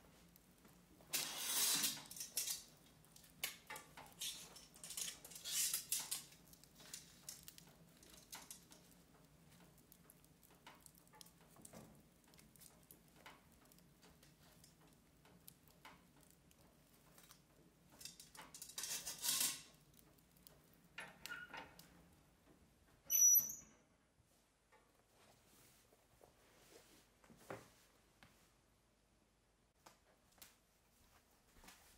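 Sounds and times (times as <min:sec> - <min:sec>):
wood fire crackling: 0:00.0 - 0:23.6
foil rustling scrape: 0:01.1 - 0:02.3
metal stove door squeal and knock: 0:23.1 - 0:23.9.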